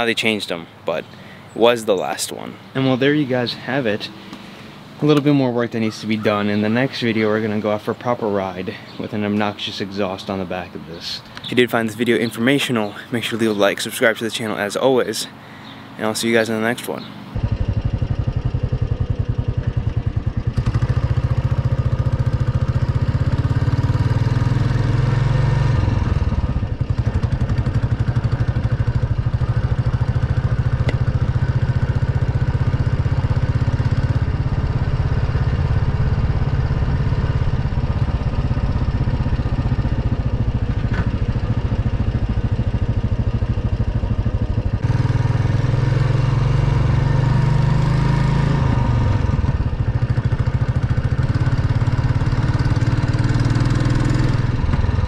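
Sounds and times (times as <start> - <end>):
motorcycle engine running: 17.3 - 55.0.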